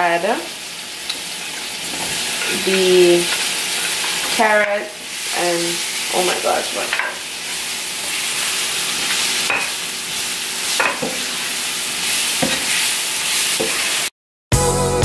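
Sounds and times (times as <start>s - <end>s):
vegetables sizzling in oil: 0.0s - 14.1s
spatula scraping a pan: 1.5s - 4.6s, 5.3s - 14.1s.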